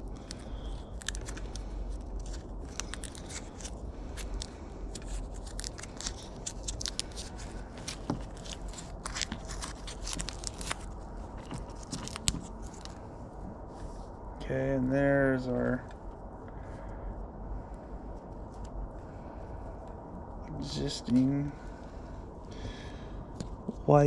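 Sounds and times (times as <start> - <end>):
wires clicking and rustling: 0.0 - 13.2.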